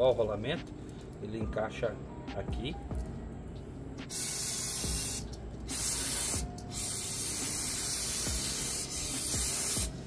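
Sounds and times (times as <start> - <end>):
aerosol spray hissing: 4.1 - 10.0.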